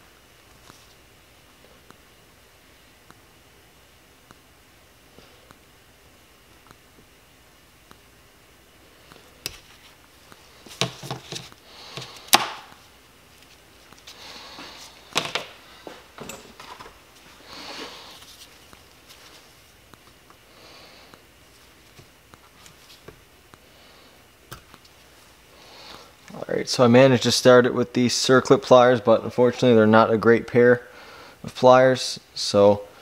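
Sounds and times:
soft breathy hisses: 17.3 - 18.4.

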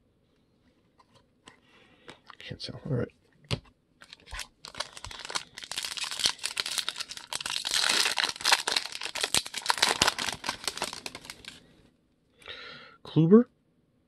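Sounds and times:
foil wrapper crinkling: 4.0 - 11.7.

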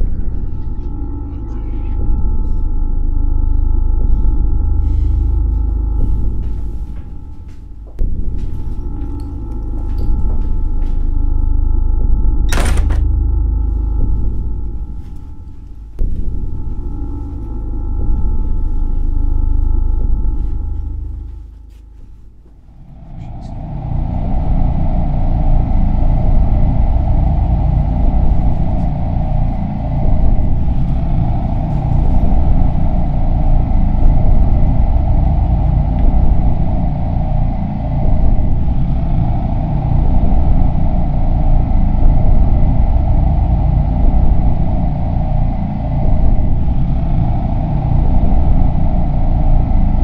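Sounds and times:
low rumbling drone: 0.0 - 50.0.

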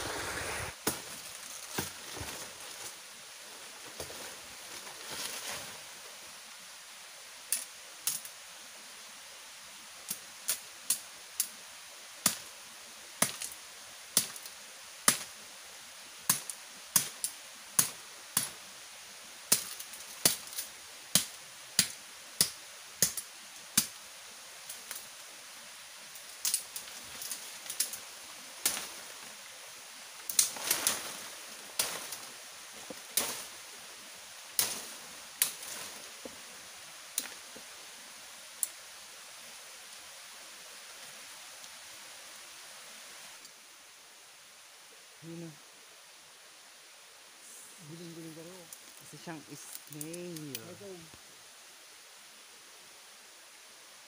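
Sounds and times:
background hiss: 0.0 - 54.0
leaves rustling: 0.0 - 54.0
woody cracks of undergrowth: 0.5 - 3.0, 3.7 - 5.8, 30.3 - 33.6.

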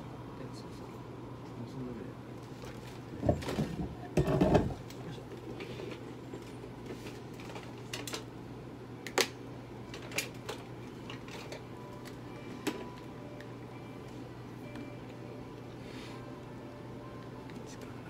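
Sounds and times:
low hum of room equipment: 0.0 - 18.0.

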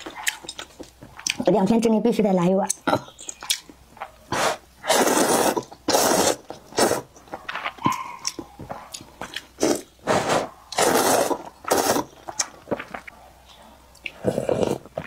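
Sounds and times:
chewing and wet mouth sounds: 0.0 - 1.9, 2.6 - 4.3, 5.5 - 9.9, 10.7 - 15.0
noodles being slurped: 4.4 - 7.2, 9.3 - 12.9.

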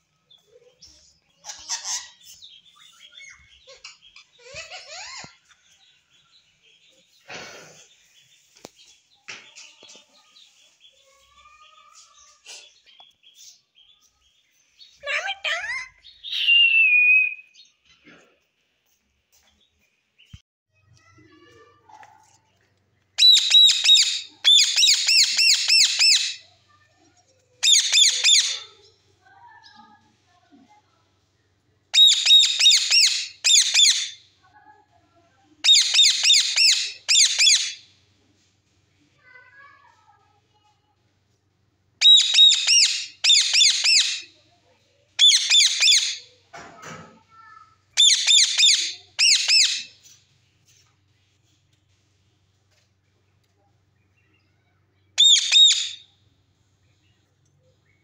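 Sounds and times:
parakeet chirping and chattering: 0.3 - 7.2, 23.2 - 29.0, 31.9 - 34.2, 35.6 - 37.9, 42.0 - 44.5, 45.2 - 46.4, 47.4 - 50.2, 55.2 - 56.0.

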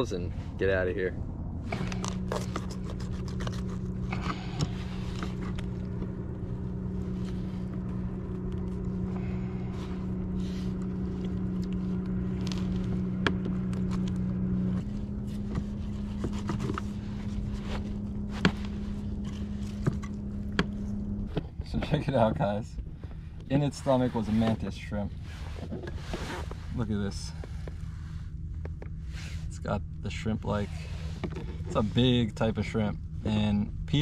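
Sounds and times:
steady low hum: 0.0 - 34.0
knife scraping and cutting fish: 1.8 - 5.6.

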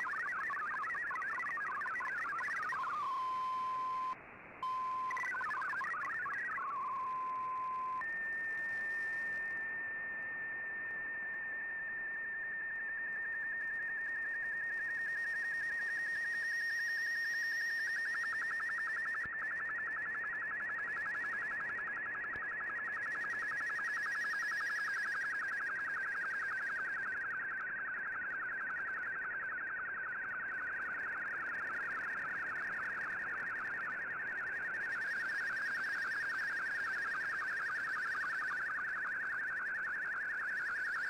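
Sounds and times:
hopping digital data tones: 0.0 - 8.0.

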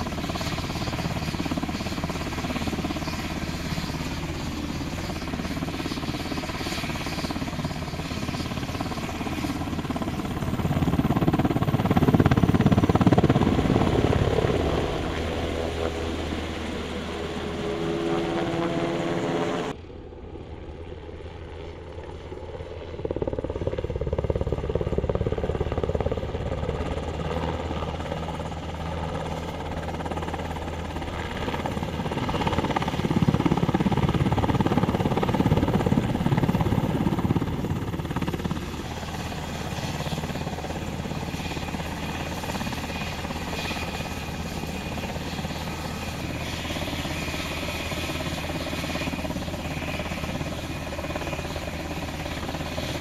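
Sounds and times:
high turbine whine: 0.0 - 21.8
helicopter rotor and engines: 0.0 - 53.0.

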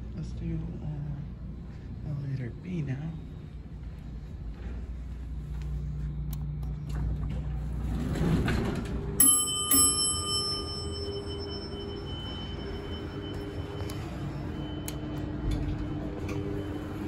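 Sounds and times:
elevator chime ringing: 7.9 - 17.0.

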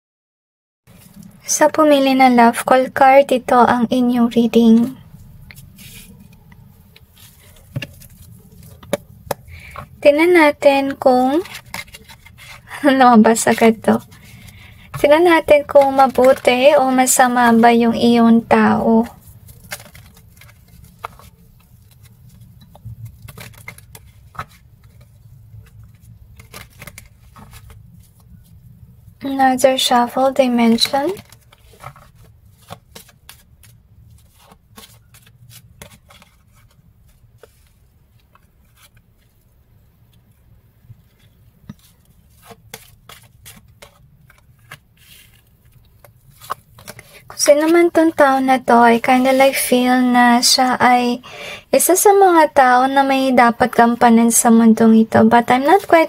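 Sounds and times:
cards being shuffled: 4.6 - 28.6, 29.2 - 40.4, 41.0 - 49.6, 55.3 - 56.0.

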